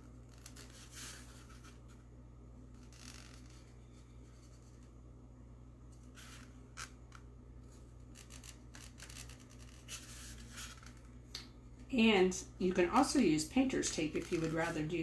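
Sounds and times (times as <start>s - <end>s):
pen tip scratching a pumpkin: 8.1s - 11.0s.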